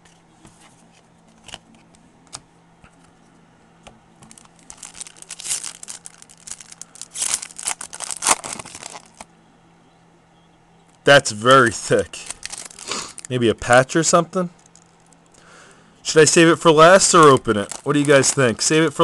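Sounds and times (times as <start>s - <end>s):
cards crinkling and rustling: 0.0s - 2.0s, 4.2s - 9.3s, 11.8s - 13.4s, 16.2s - 19.0s.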